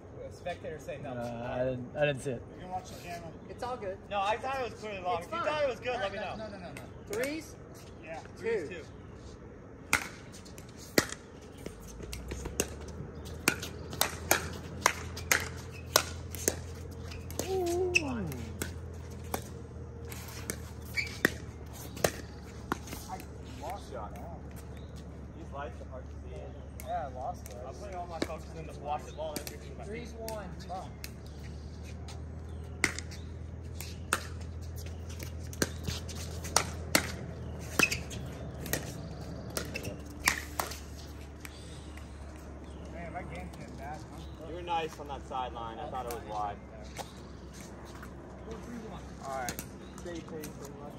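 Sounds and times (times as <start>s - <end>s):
steady low hum: 0.0s - 50.9s
paddles hitting plastic ball: 9.9s - 24.2s, 32.7s - 42.8s
ball bouncing on court: 9.9s - 24.3s, 26.8s - 28.6s, 29.2s - 31.2s, 32.7s - 33.2s, 33.8s - 41.1s.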